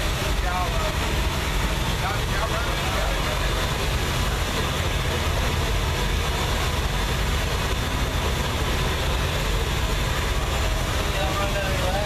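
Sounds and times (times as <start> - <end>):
engine idling loud low pulsing: 0.0 - 12.0.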